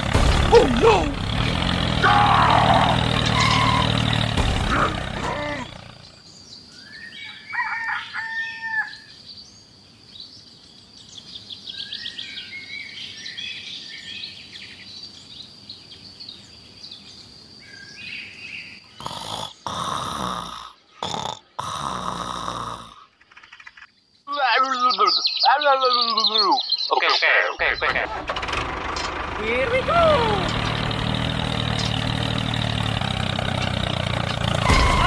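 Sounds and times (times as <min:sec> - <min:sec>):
birds chirping: 0:00.0 - 0:28.3, 0:29.2 - 0:35.0
loud snoring breaths: 0:19.0 - 0:23.1.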